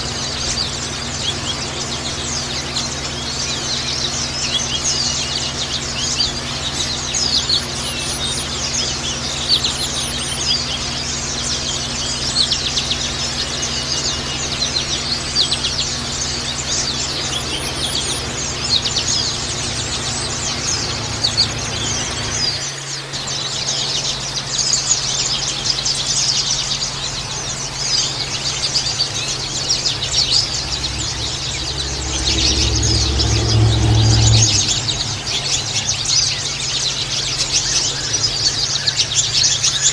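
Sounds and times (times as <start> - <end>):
birds chirping and twittering: 0.0 - 39.9
steady low hum: 0.0 - 39.9
low rumble: 28.7 - 37.5.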